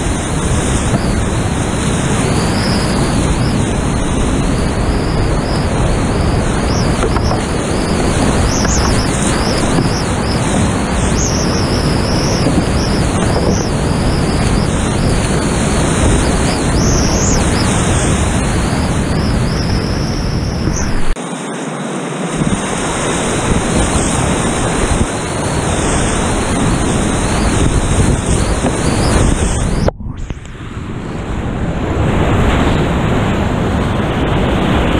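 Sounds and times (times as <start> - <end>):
whitewater rapids roaring: 0.0 - 19.8
water splashing: 0.0 - 20.0.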